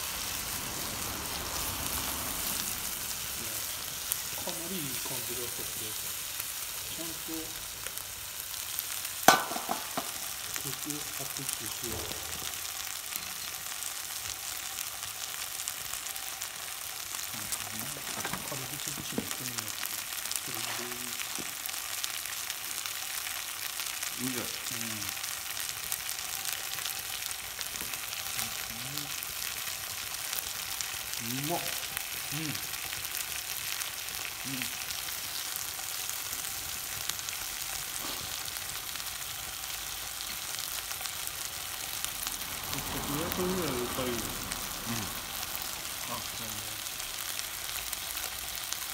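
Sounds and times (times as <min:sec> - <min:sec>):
meat sizzling in a frying pan: 0:00.0 - 0:48.9
small pops and crackles: 0:09.2 - 0:10.8, 0:17.2 - 0:24.3, 0:25.0 - 0:38.6.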